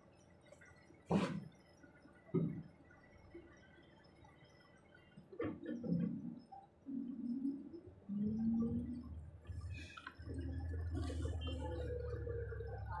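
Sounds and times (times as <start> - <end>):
tractor diesel engine running: 8.4 - 13.0.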